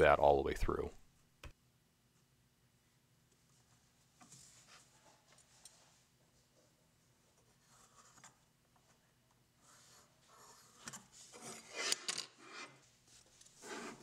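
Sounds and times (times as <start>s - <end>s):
pencil scratching on wood: 13.6s - 14.0s.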